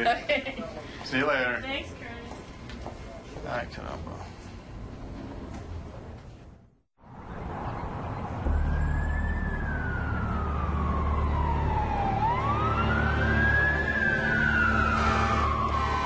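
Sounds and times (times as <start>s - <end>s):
low hum: 7.1s - 16.0s
siren wailing: 8.4s - 16.0s.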